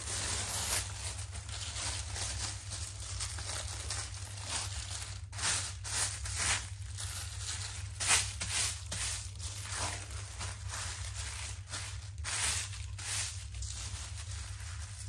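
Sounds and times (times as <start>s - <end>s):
low steady hum: 0.0s - 15.0s
plastic bag crinkling: 0.0s - 15.0s.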